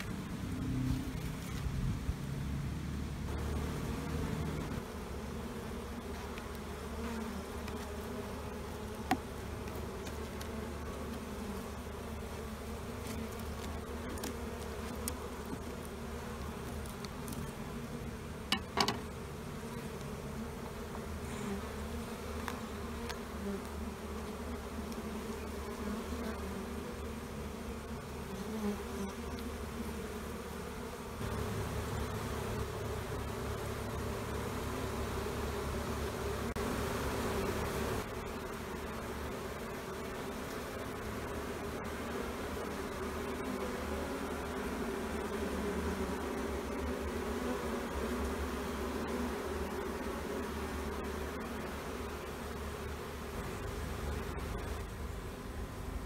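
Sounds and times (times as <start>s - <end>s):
bees buzzing: 0.0s - 56.0s.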